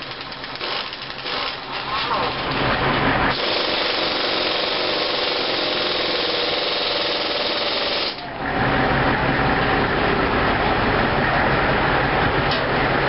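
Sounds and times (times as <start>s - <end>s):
deep steady engine: 0.0s - 13.0s
power tool buzzing rattle: 3.3s - 8.2s.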